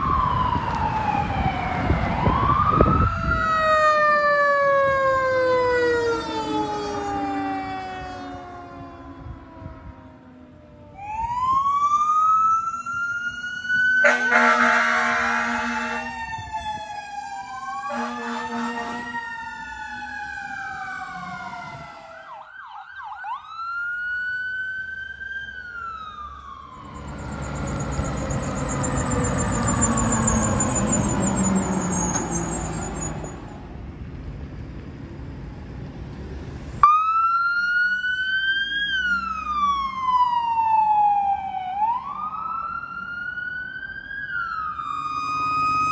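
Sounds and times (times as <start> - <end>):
rushing vehicle noise: 0.0 - 22.4, 24.1 - 45.9
sirens wailing: 0.0 - 33.8, 36.7 - 45.9
long horn blasts: 14.0 - 16.2, 17.8 - 19.2.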